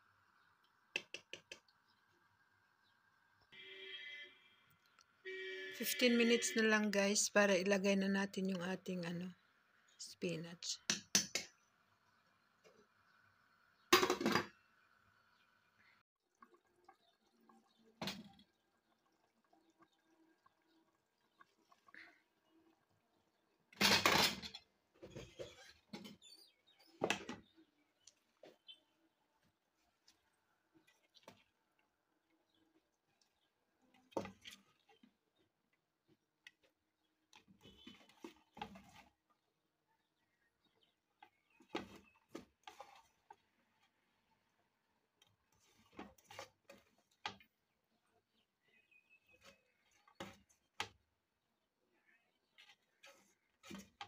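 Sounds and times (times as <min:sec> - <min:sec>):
curry simmering and bubbling: 0:11.1 - 0:54.0.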